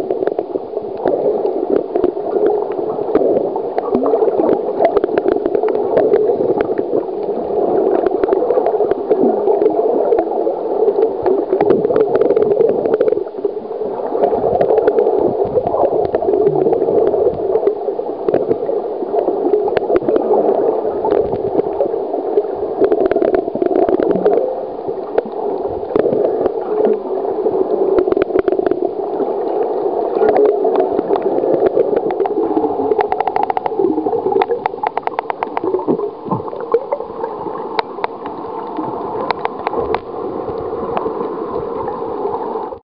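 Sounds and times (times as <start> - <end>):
faint clicks and crackles: 0.0 - 42.8
underwater gurgling and sloshing: 0.0 - 42.8.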